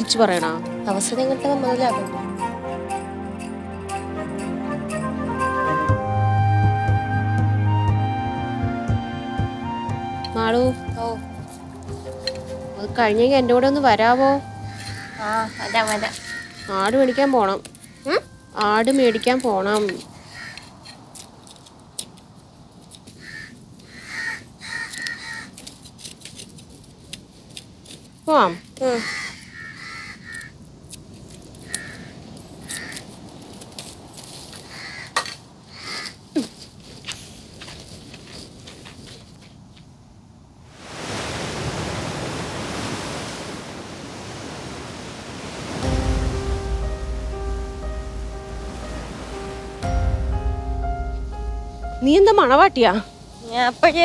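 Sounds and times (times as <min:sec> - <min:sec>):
wind through palm fronds: 0:08.0 - 0:54.0
crow cawing: 0:14.5 - 0:18.3, 0:20.2 - 0:20.8, 0:23.2 - 0:25.6, 0:28.5 - 0:30.6, 0:31.6 - 0:33.1, 0:34.6 - 0:36.2.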